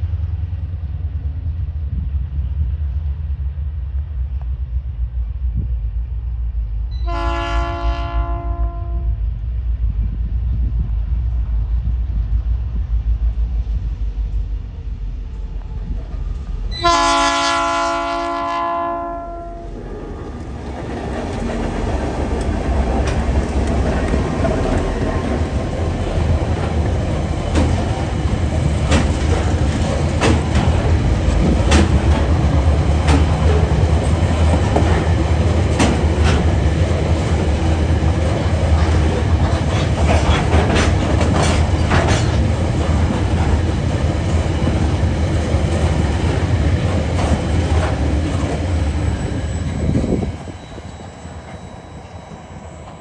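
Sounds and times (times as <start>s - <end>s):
train wagons rumbling: 0.0s - 53.0s
wheels clacking on rail joints: 19.8s - 49.6s.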